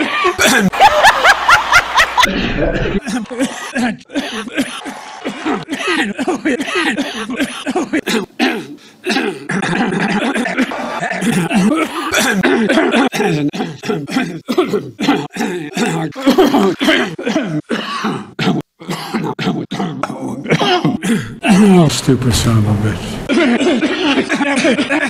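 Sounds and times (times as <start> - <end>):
man coughing: 0.0 - 0.7, 2.6 - 22.8
throat clearing: 2.7 - 21.4.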